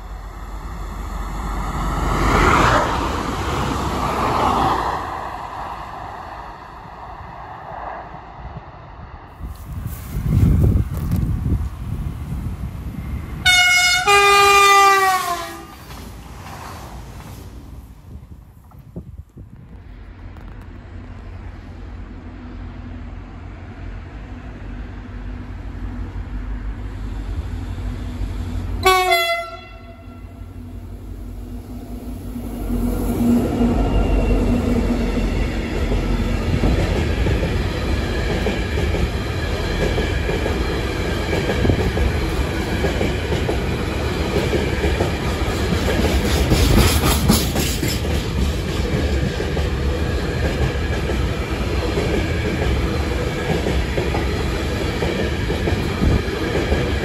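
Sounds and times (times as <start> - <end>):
freight train rumbling past: 0.0 - 57.0
train horn blast: 13.4 - 15.8, 28.8 - 30.5
wheels clattering on rails: 34.8 - 57.0.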